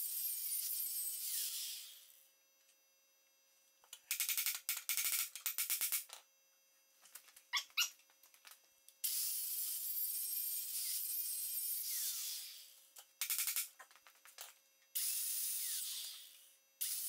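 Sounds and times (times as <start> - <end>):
angle grinder cutting metal: 9.1 - 12.7.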